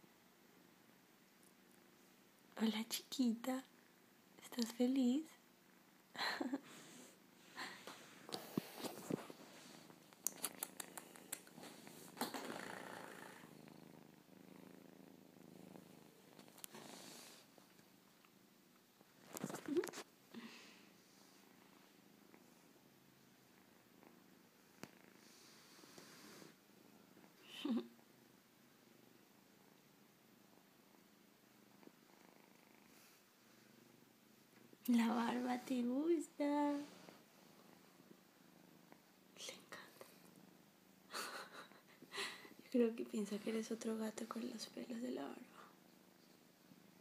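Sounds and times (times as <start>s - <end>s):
kitten purring: 6.2s - 47.0s
sharp clicks: 10.2s - 11.6s.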